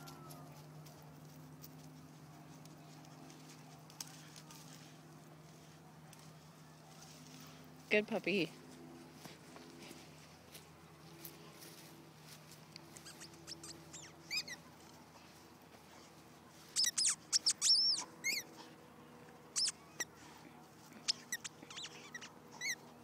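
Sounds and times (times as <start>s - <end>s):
squeaky toy squeaking: 13.0s - 14.6s, 16.8s - 18.5s, 19.5s - 20.1s, 21.1s - 22.9s.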